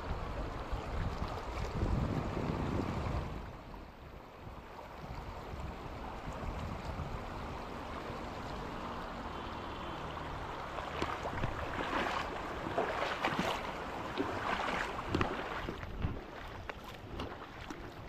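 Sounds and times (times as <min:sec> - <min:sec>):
river water rushing over rocks: 0:04.3 - 0:18.0
water splashing: 0:06.2 - 0:18.0.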